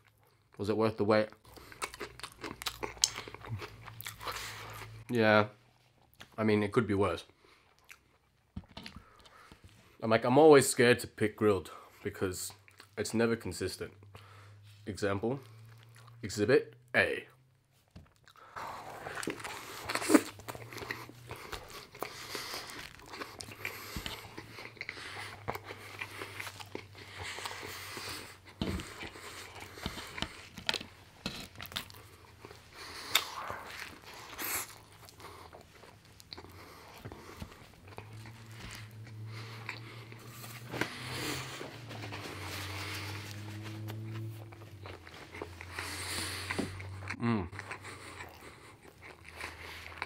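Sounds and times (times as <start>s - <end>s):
chewing with small crunches: 0.0s - 6.4s, 7.2s - 10.0s, 11.7s - 16.9s, 17.5s - 50.0s
biting into a burger: 1.4s - 5.1s, 18.0s - 50.0s.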